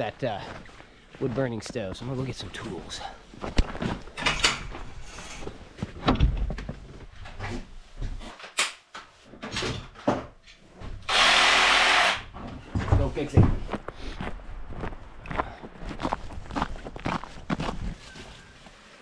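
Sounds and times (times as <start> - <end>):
tools knocking and rattling: 4.1 - 7.5.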